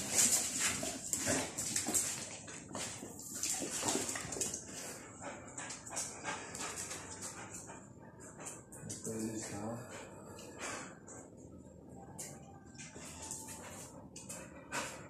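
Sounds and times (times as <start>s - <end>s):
dogs scuffling on concrete: 0.0s - 7.6s.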